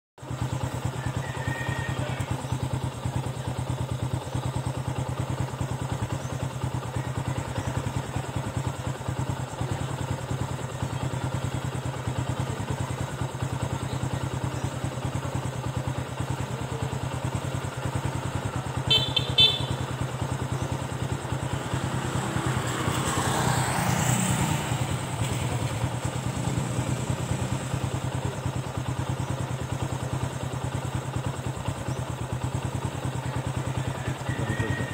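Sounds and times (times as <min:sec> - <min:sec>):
low engine hum: 0:00.2 - 0:34.9
vehicle passing: 0:21.5 - 0:25.6.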